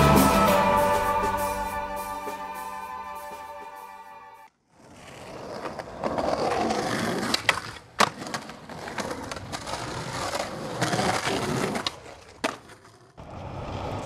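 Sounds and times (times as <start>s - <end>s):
skateboard wheels rolling on pavement: 4.5s - 14.0s
skateboard clacks: 5.0s - 14.0s.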